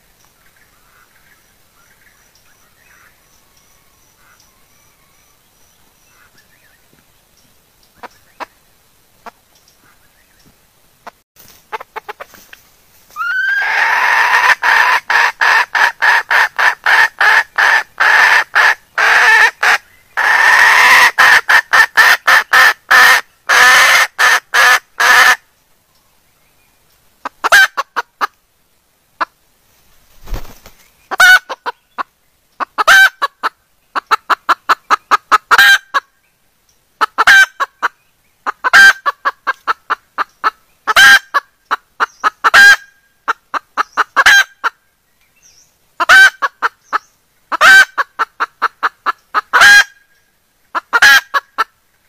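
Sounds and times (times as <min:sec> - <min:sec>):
hen clucking: 0:09.2 - 0:09.4, 0:11.0 - 0:12.6, 0:13.2 - 0:25.4, 0:27.2 - 0:28.4, 0:31.1 - 0:36.1, 0:37.0 - 0:44.8, 0:46.0 - 0:50.0, 0:50.7 - 0:51.7.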